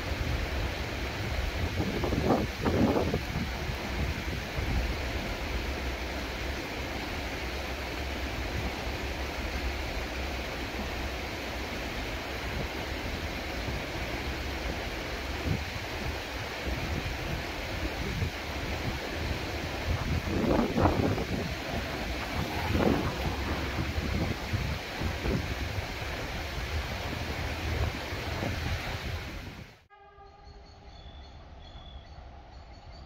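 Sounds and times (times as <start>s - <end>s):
wind buffeting microphone: 0.1s - 5.1s, 15.3s - 29.8s.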